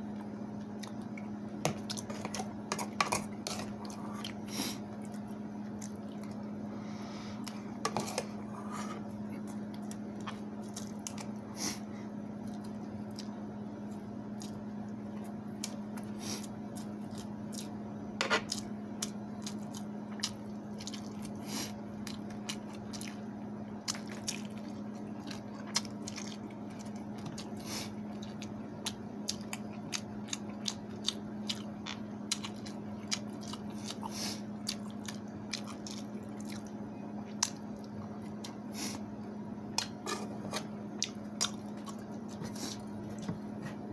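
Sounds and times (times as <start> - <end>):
steady low hum: 0.0 - 43.9
wet squishing of food: 0.6 - 6.6, 18.5 - 39.1
chewing: 5.0 - 6.6, 12.4 - 17.8, 18.4 - 38.6, 39.8 - 43.8.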